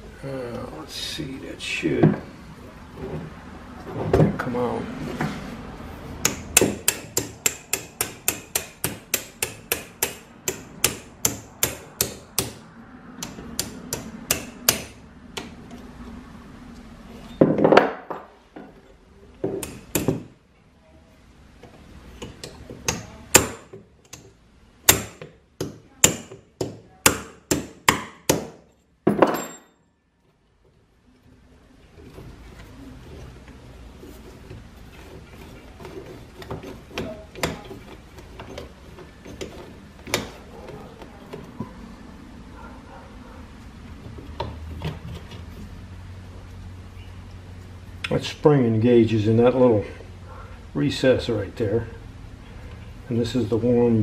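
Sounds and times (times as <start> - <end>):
hammer tapping on metal: 6.2 - 12.6, 13.2 - 15.5.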